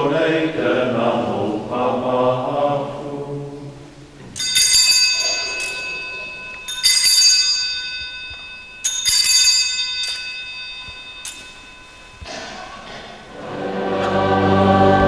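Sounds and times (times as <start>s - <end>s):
altar bells jangling: 4.4s - 13.3s.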